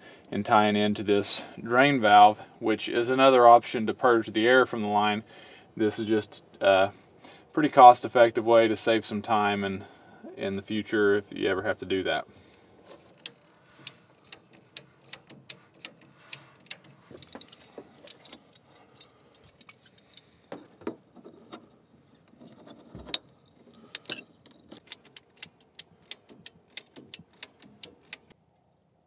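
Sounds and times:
sharp tool clicks: 0:13.2 - 0:16.8, 0:23.9 - 0:28.3.

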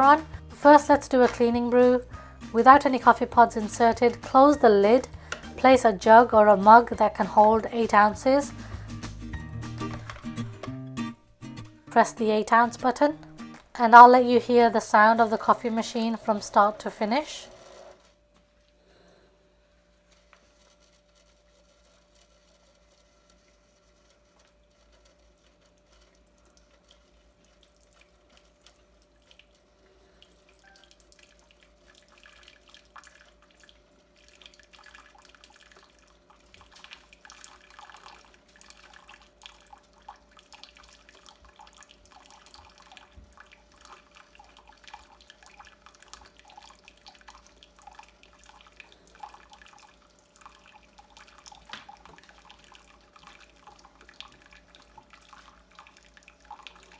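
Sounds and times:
faint steady hum: 0:11.8 - 0:56.9
water trickling into a glass jug: 0:20.7 - 0:56.9.

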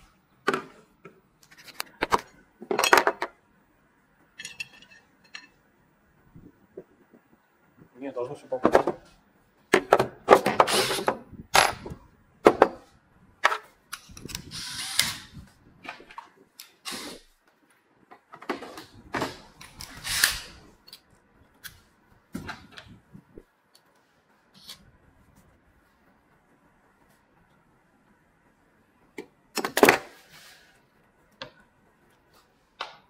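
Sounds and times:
cordless drill driving screws: 0:14.5 - 0:15.3.

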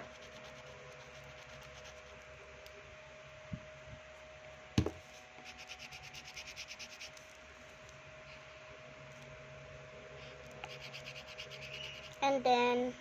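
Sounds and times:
colouring strokes on paper: 0:00.0 - 0:02.2, 0:05.4 - 0:07.2, 0:10.6 - 0:12.2
louder thump: 0:04.8 - 0:05.0
small knock: 0:04.8 - 0:05.0.

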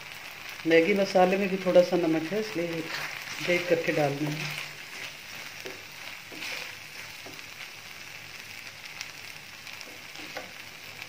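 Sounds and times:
food sizzling in a frying pan: 0:00.0 - 0:11.0
wooden spatula scraping pan: 0:02.8 - 0:07.5.

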